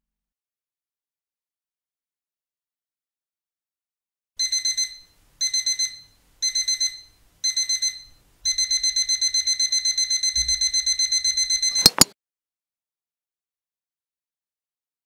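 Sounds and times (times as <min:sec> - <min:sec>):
digital alarm clock beeping: 0:04.4 - 0:12.1.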